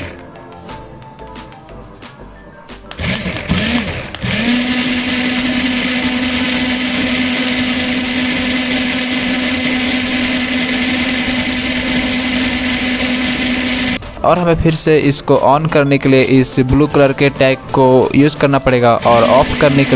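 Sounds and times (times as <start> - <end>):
small gear motors whining: 0.0 - 0.2, 2.9 - 14.0, 19.0 - 19.9.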